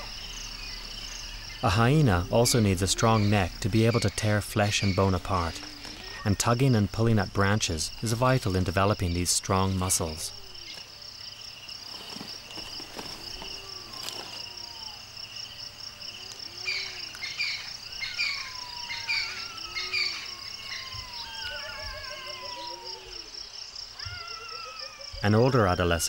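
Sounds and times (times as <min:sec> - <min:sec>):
birds chirping: 0:00.0 - 0:26.0
insect chorus trilling: 0:00.0 - 0:26.0
low arched bird call: 0:16.5 - 0:23.4.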